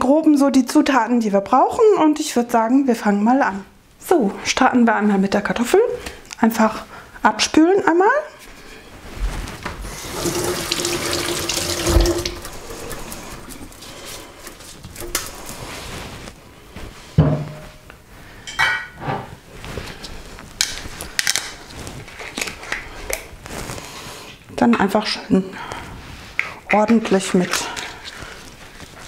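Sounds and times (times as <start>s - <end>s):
kitchen tap running: 9.9s - 15.6s.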